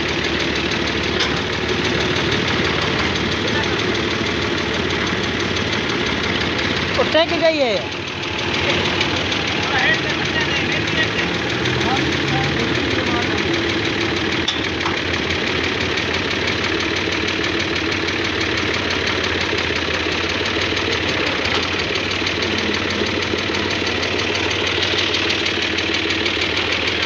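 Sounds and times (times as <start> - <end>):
tractor diesel engine running: 0.0 - 27.0.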